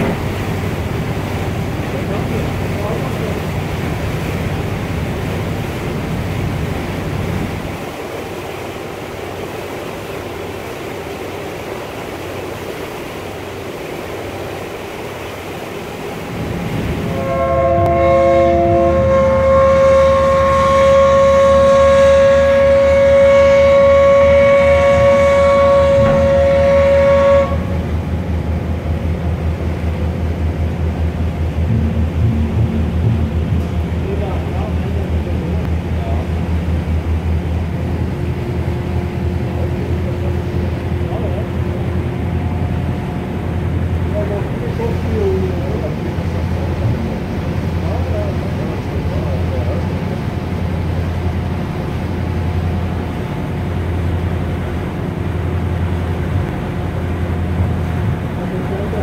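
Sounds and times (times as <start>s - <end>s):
low engine hum: 0.0s - 59.0s
wind and water rushing: 0.0s - 59.0s
ship's whistle long blast: 17.1s - 28.0s
low rhythmic thudding: 31.6s - 34.6s.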